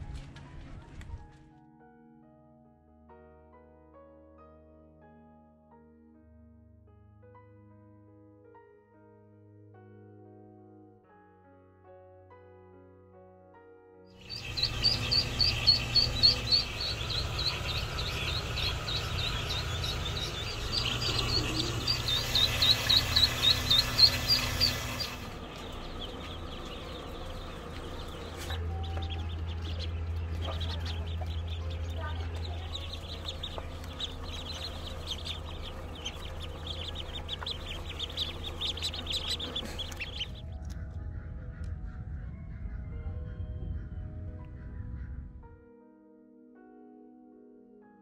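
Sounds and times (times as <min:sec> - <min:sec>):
chicks peeping: 0:14.2 - 0:42.7
low steady hum: 0:14.2 - 0:44.2.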